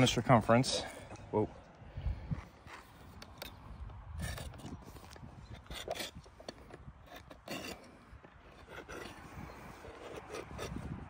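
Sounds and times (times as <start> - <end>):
rasp scraping on horn: 7.0 - 11.0.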